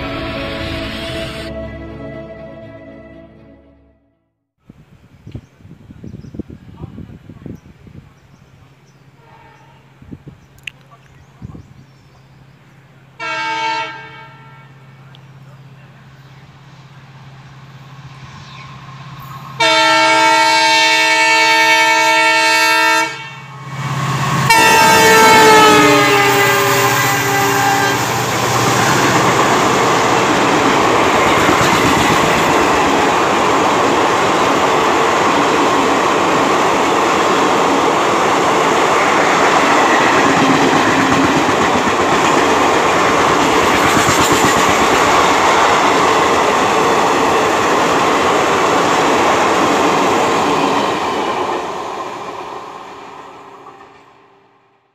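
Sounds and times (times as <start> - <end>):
locomotive horn: 0.0 - 4.2, 9.2 - 9.9, 13.2 - 15.0, 19.6 - 31.5
train coaches rushing past: 14.8 - 54.5.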